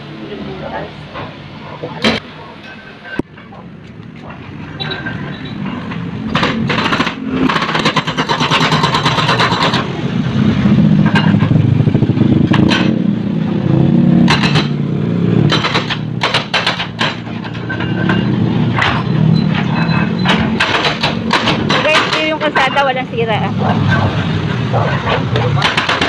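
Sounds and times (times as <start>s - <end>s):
excavator engine running: 0.0s - 26.0s
hydraulic breaker hammering concrete: 6.3s - 10.0s, 14.1s - 22.9s, 25.2s - 26.0s.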